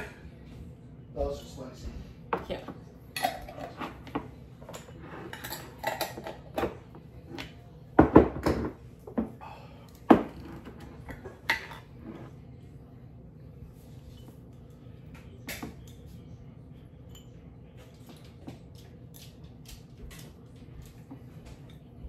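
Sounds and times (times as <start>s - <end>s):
dishes and cutlery clattering: 2.4s - 9.4s, 10.1s - 12.3s.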